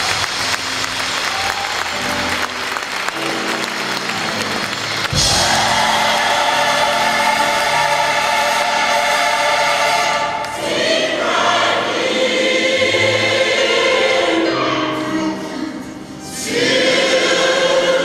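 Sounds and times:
gospel choir singing chords: 4.3 - 18.0.

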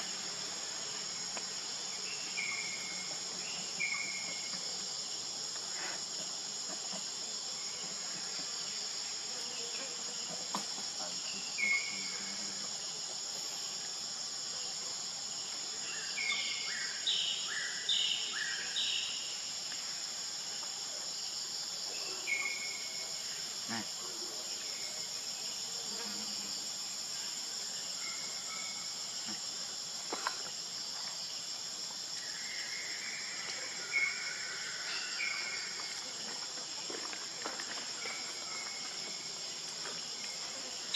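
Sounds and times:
insect chorus drone: 0.0 - 40.9.

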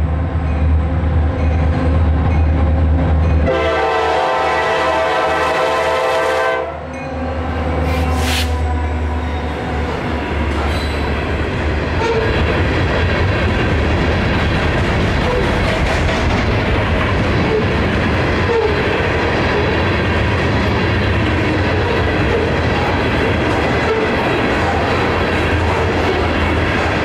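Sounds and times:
freight train rumbling past: 0.0 - 27.0
wheels clattering on rails: 10.4 - 27.0.

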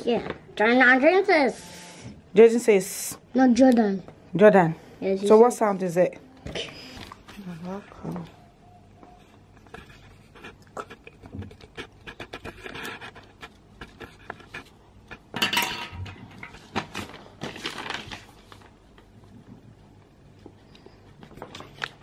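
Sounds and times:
pencil scratching on paper: 9.2 - 14.7.

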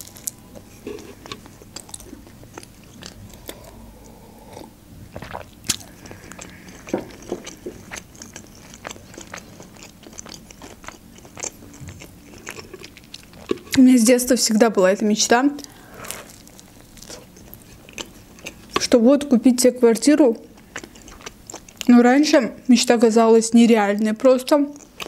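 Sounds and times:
person chewing pizza: 0.0 - 13.8, 15.6 - 19.0, 20.4 - 22.0, 24.6 - 25.0.

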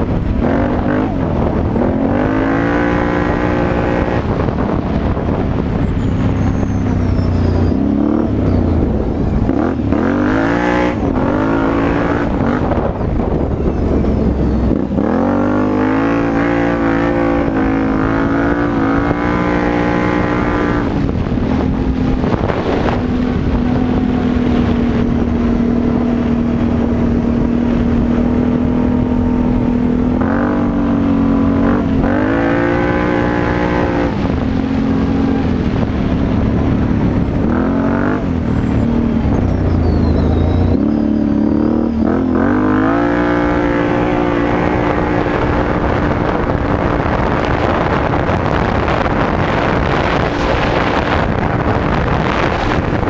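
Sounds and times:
quad engine revving: 0.0 - 5.6, 7.0 - 53.0.

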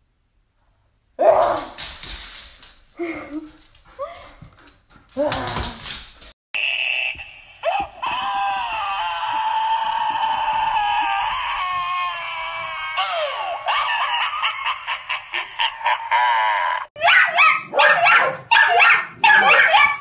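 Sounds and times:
long high-pitched wail: 7.6 - 13.8.

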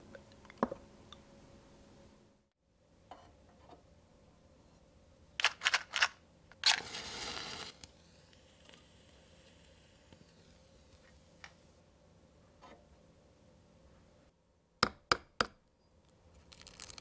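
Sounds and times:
match striking and flaring: 6.6 - 11.6.

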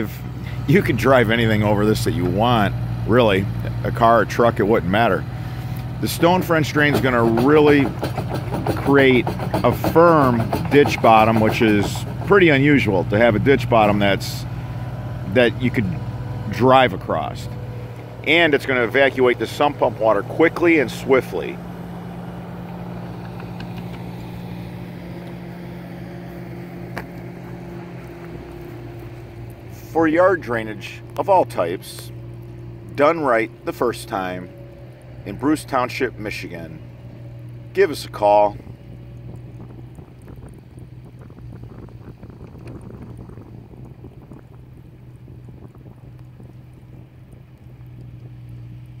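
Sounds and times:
engine idling: 0.0 - 49.0
wind noise on microphone: 38.6 - 48.7.

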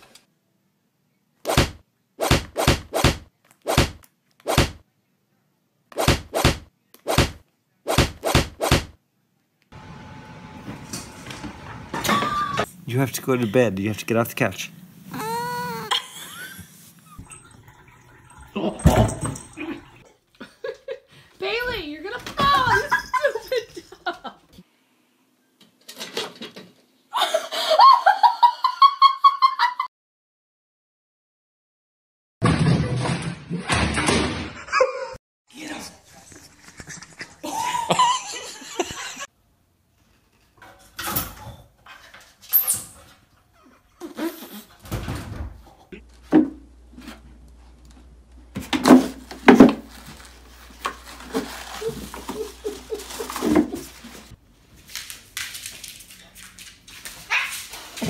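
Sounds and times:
person laughing: 15.2 - 16.7, 27.1 - 29.9, 34.6 - 35.2, 36.2 - 39.3, 51.7 - 53.9.

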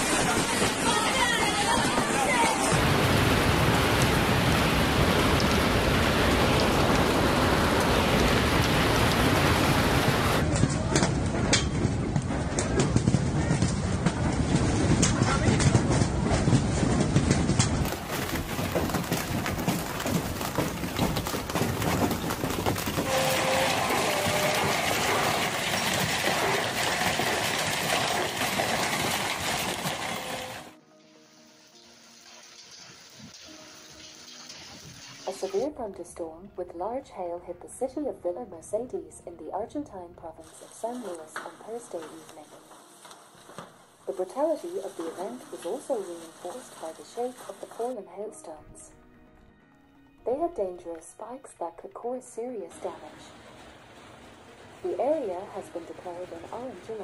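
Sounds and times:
hail and rain pelting the ground: 0.0 - 30.8, 40.8 - 47.9, 53.2 - 57.0.

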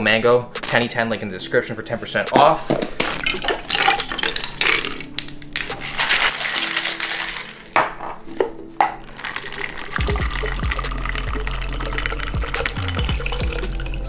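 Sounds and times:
cocktail shaker rattling: 9.2 - 14.0.

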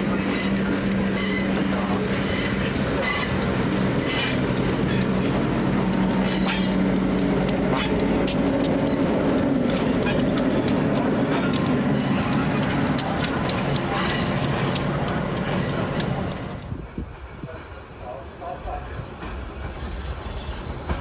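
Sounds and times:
wheels clicking over rail joints: 0.0 - 16.6
diesel locomotive engine hum: 0.0 - 21.0.

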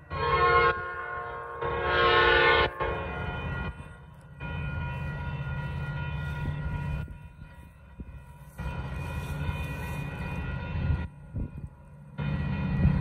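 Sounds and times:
locomotive horn blasts: 0.0 - 7.6.

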